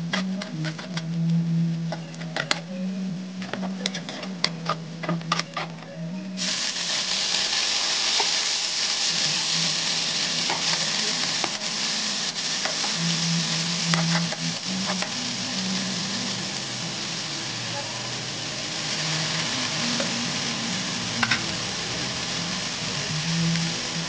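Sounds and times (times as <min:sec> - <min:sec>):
loud sizzle in hot oil: 0:06.4 - 0:24.0
metal spatula scraping a wok: 0:12.5 - 0:15.2.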